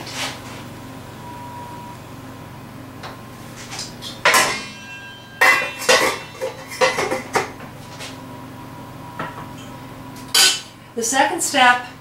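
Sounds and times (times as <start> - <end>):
loud ringing clang: 4.2 - 7.5
metal pots and lids clanking: 4.2 - 7.6.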